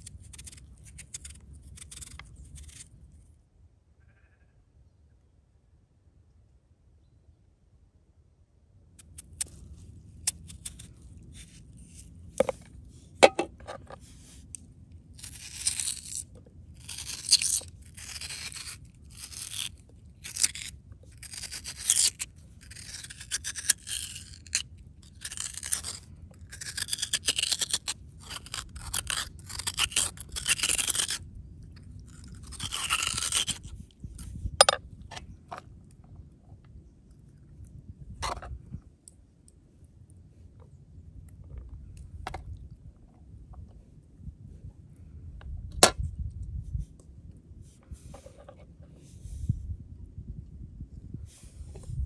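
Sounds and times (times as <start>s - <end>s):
knife scraping potato: 0.0s - 3.0s, 10.2s - 12.6s, 15.2s - 16.2s, 16.8s - 31.2s, 32.0s - 34.7s.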